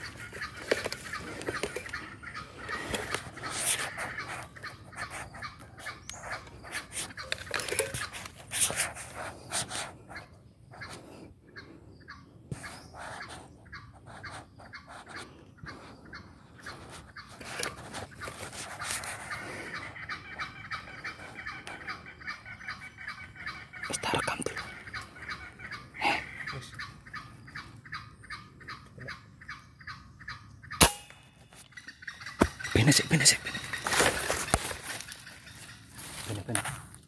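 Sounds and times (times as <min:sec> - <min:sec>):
junglefowl calling and clucking: 0:00.0 - 0:37.0.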